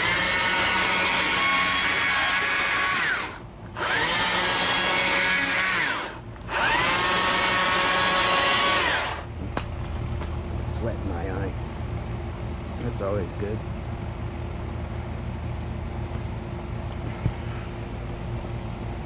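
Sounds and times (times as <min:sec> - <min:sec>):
chainsaw revving: 0:00.0 - 0:09.3.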